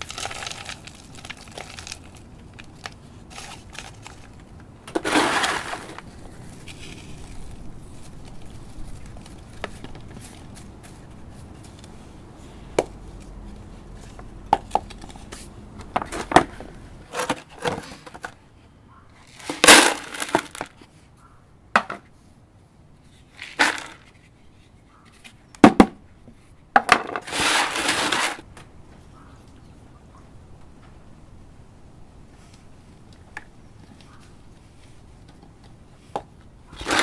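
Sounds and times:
potting mix pouring: 0:00.0 - 0:04.2, 0:05.0 - 0:06.0, 0:19.3 - 0:20.6, 0:27.3 - 0:28.4
plastic pots clattering: 0:00.0 - 0:07.3, 0:14.0 - 0:18.4, 0:19.3 - 0:20.8, 0:23.4 - 0:24.3, 0:26.8 - 0:28.4, 0:36.2 - 0:37.0.

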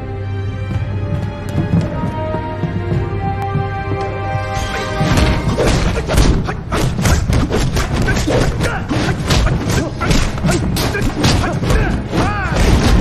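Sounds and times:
punch and kick impacts: 0:05.4 - 0:13.0.

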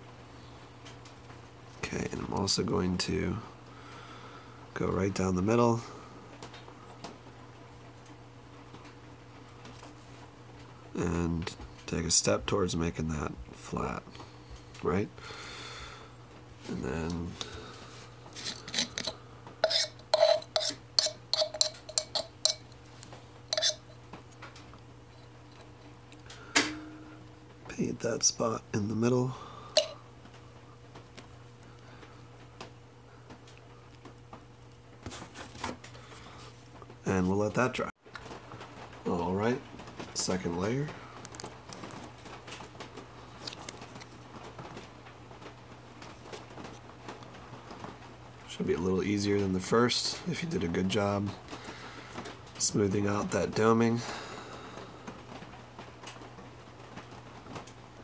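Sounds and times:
steady low hum: 0:00.0 - 0:58.0
clicks and rustles of handling: 0:39.6 - 0:48.1.

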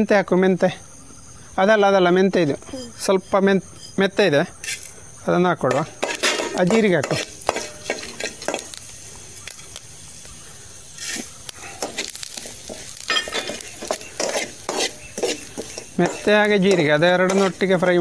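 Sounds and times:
seeds sizzling in oil: 0:01.5 - 0:18.0
ladle scraping a steel pan: 0:05.8 - 0:08.6, 0:12.7 - 0:17.7.

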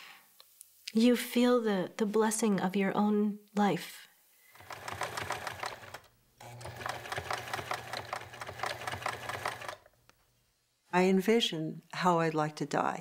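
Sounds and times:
sewing machine stitching: 0:04.5 - 0:09.9.

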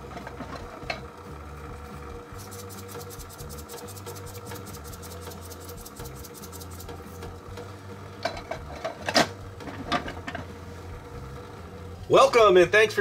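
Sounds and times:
steady low hum: 0:00.0 - 0:13.0
fast even ticking: 0:02.4 - 0:06.9.

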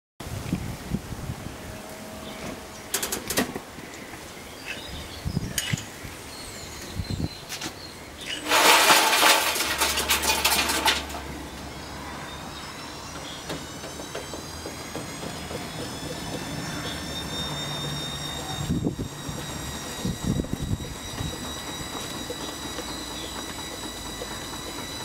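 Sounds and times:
motor whine rising in pitch: 0:08.3 - 0:25.0.

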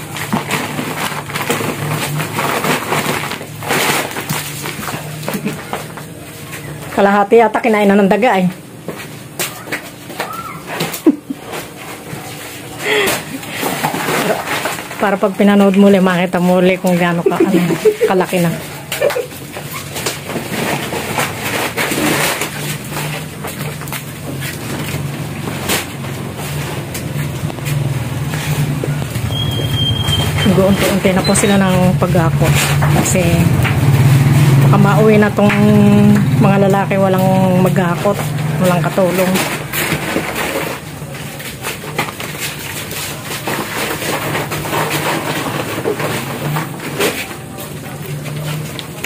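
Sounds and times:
sacks rustling and knocking: 0:00.0 - 0:06.9, 0:08.6 - 0:49.0
plastic packaging crinkling: 0:00.0 - 0:07.0, 0:08.6 - 0:49.0.

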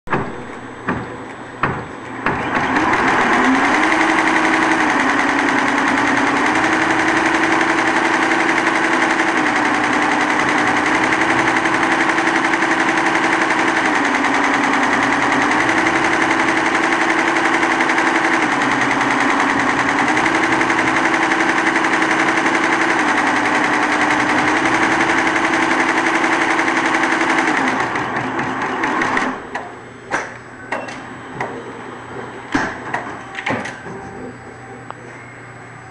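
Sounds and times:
embroidery machine stitching: 0:02.4 - 0:29.6.

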